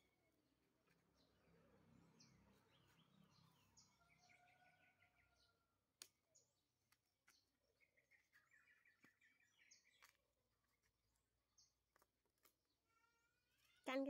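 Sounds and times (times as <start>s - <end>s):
distant birds chirping: 0.0s - 14.0s.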